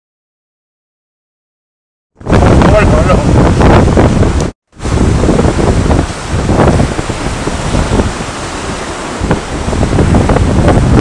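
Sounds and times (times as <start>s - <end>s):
surf breaking on rocks: 2.2s - 11.0s
wind buffeting microphone: 2.2s - 11.0s.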